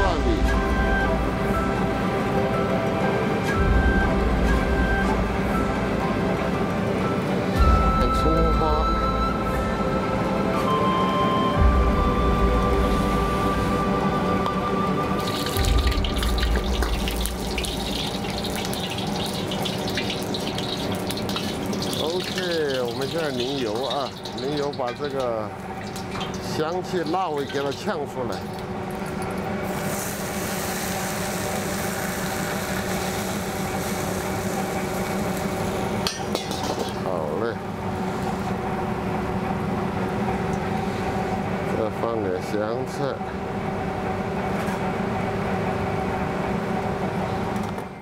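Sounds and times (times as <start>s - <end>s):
background music: 0.0s - 24.6s
kitchen equipment drone: 0.0s - 48.0s
gas flame: 12.6s - 41.8s
hot oil sizzling: 15.0s - 37.4s
running water from tap: 15.1s - 37.0s.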